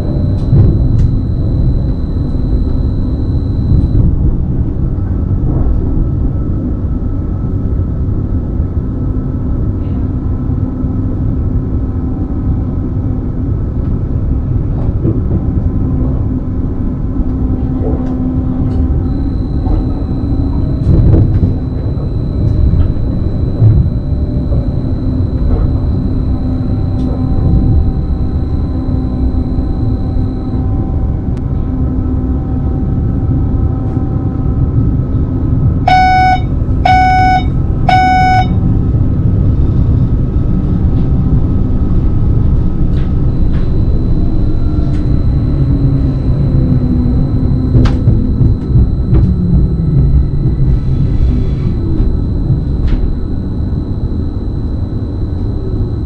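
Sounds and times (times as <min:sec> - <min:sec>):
short electronic beeps: 0:00.0 - 0:04.1, 0:19.0 - 0:30.9, 0:35.9 - 0:38.6
faint high whine: 0:00.0 - 0:04.2, 0:18.0 - 0:31.7, 0:35.8 - 0:38.6, 0:40.9 - 0:56.0
train wheels rumbling on track: 0:39.4 - 0:53.3.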